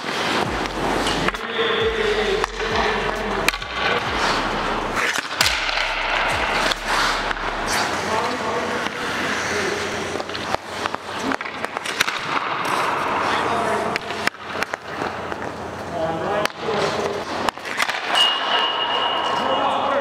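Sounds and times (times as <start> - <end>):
skates scraping on ice: 0.0 - 15.9
sticks and puck clacking: 0.0 - 19.8.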